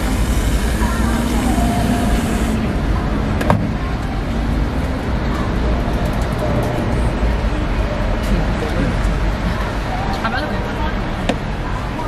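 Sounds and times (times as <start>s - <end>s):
aerosol can spraying: 0.0s - 2.6s
street traffic din: 0.0s - 12.0s.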